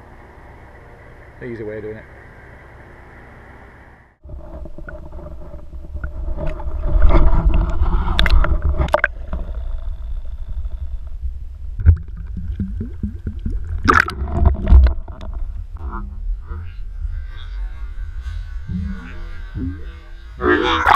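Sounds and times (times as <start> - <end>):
underwater river rumble and gurgling: 4.2 - 20.9.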